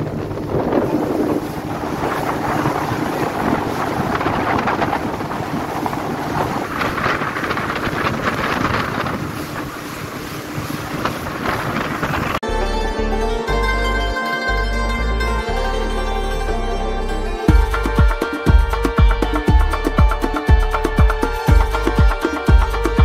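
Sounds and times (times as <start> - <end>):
wind blowing on microphone: 0.0 - 12.4.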